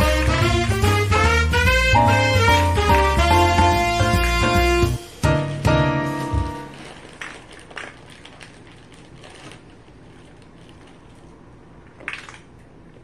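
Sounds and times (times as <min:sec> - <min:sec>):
background music: 0:00.0 - 0:06.8.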